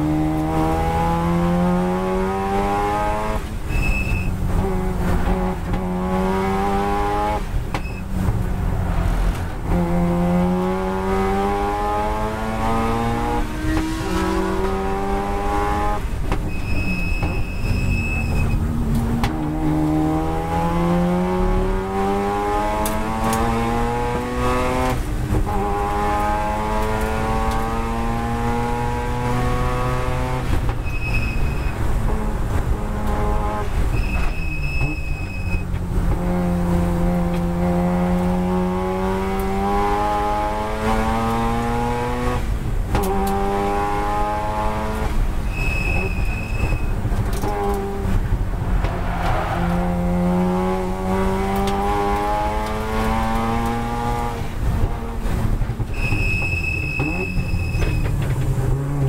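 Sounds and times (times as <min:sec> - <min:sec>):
rotary engine revving: 0:08.2 - 0:16.4, 0:35.9 - 0:56.0.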